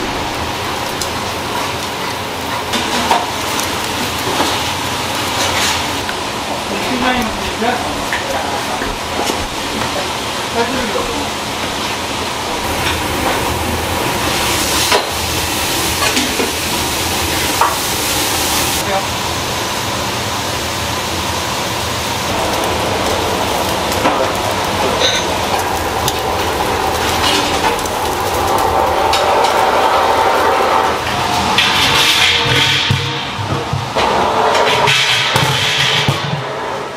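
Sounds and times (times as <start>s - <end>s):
bones sizzling on grill: 0.0s - 36.9s.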